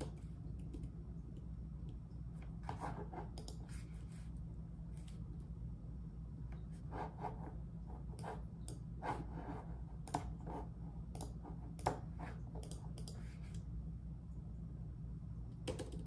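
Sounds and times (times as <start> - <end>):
steady low hum: 0.0 - 16.0
typing on computer keyboard: 12.6 - 13.2, 15.6 - 16.0.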